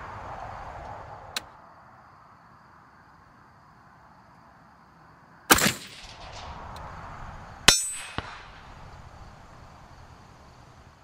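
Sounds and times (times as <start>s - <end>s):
rifle shot: 5.5s - 7.0s, 7.7s - 8.9s
steel target clang: 7.7s - 8.7s.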